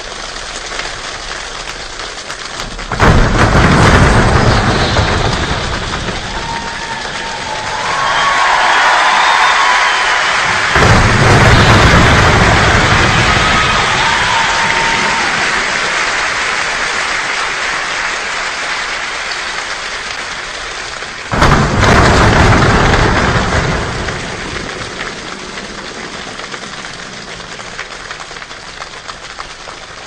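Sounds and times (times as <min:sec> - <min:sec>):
choir body percussion rain: 0:00.0 - 0:30.0
thunder-like surge: 0:02.9 - 0:16.0, 0:21.3 - 0:27.7.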